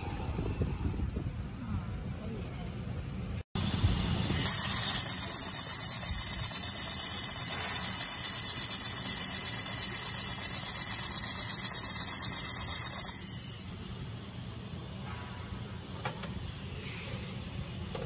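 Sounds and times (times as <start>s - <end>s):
high-pitched hiss of welding torch: 4.3s - 13.8s.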